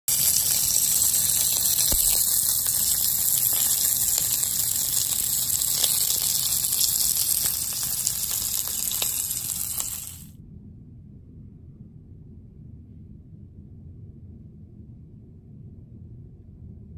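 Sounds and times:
fat crackling and popping: 0.0s - 10.3s
sausages sizzling in a pan: 0.0s - 10.3s.

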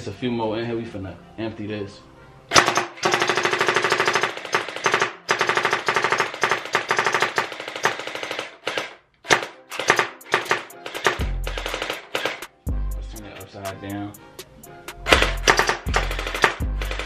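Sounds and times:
gel blaster firing rapid bursts: 2.5s - 12.5s, 15.1s - 17.0s.

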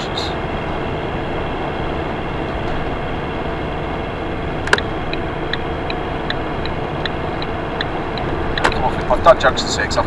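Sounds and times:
engine and road noise: 0.0s - 10.0s
turn signal ticking: 4.6s - 9.1s.

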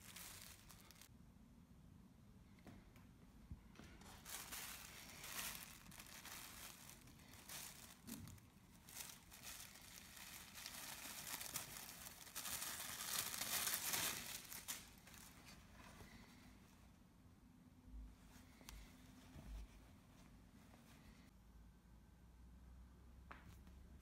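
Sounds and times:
tissue paper crinkling: 0.0s - 1.1s, 4.0s - 16.4s.

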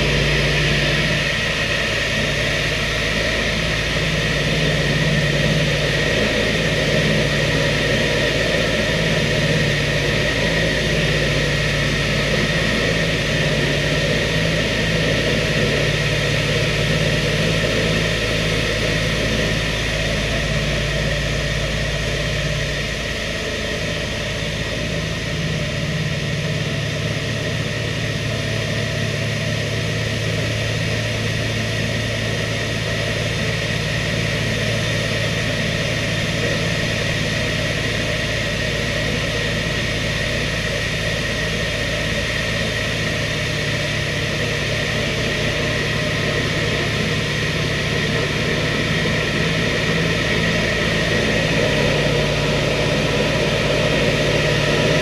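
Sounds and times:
aircraft propeller engines droning: 0.0s - 55.0s.

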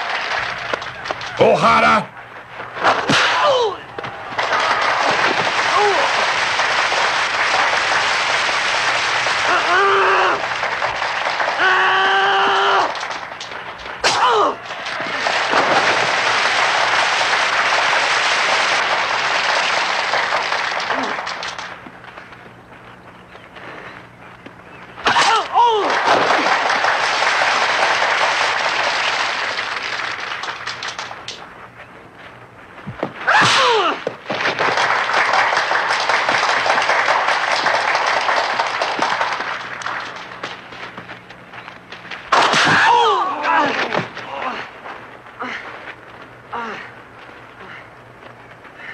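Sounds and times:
crowd applauding: 0.0s - 2.4s, 3.7s - 23.0s, 25.3s - 31.4s, 34.0s - 41.7s
sharp yell: 3.2s - 4.0s, 9.4s - 10.5s, 11.4s - 13.0s, 14.0s - 14.7s, 25.1s - 26.0s, 42.6s - 44.7s.

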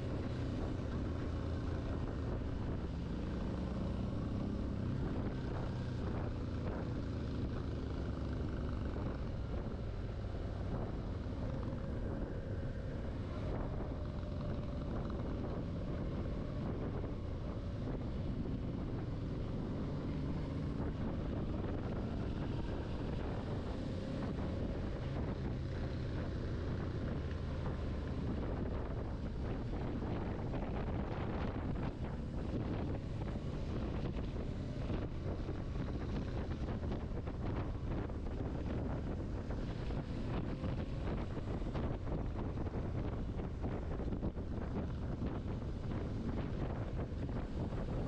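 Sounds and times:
motorcycle engine running: 0.0s - 48.0s
wind rushing over microphone: 0.0s - 48.0s.

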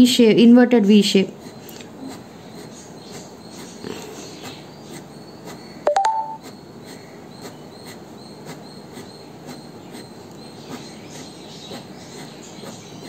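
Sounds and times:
pen scratching on paper: 1.1s - 13.0s
rising chirp: 5.9s - 6.4s.

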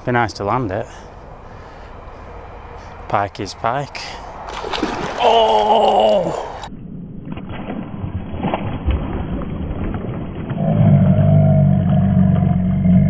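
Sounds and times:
dull splashing: 4.2s - 6.7s
deep drawn-out roar: 10.5s - 13.0s.

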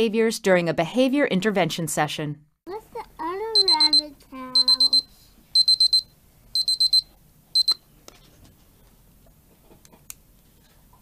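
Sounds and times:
timer alarm beeping: 3.5s - 7.8s.

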